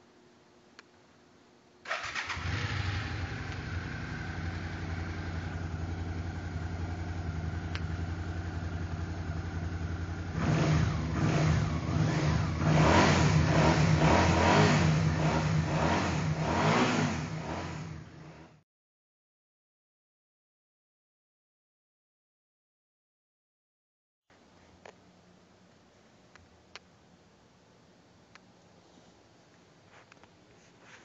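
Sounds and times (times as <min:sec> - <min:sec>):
motorcycle engine starting and idling: 0:01.8 - 0:18.6
motorcycle throttle blips: 0:01.9 - 0:18.3.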